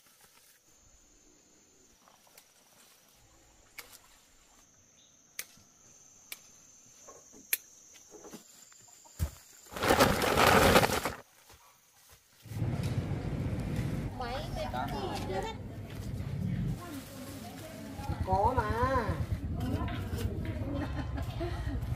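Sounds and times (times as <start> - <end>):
insects droning: 0.0 - 14.8.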